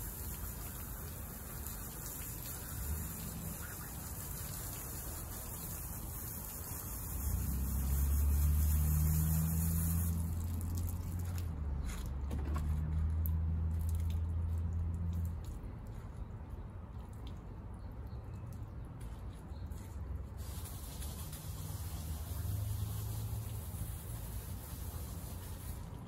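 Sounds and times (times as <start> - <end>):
water dripping and squishing: 0.0 - 26.0
high hiss: 1.3 - 10.3, 20.4 - 25.8.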